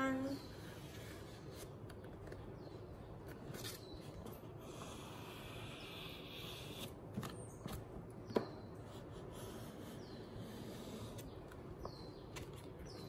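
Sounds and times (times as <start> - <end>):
crayon scratching on paper: 8.8 - 11.4.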